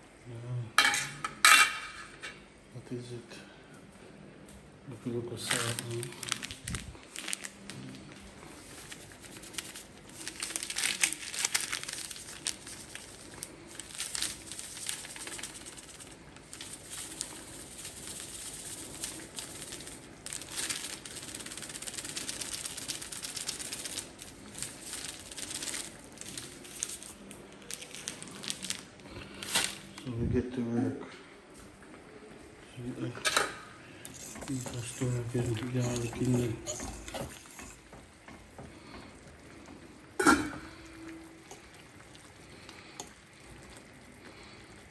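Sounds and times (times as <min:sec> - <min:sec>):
plastic bag crinkling: 0:05.3 - 0:30.1, 0:34.1 - 0:37.9.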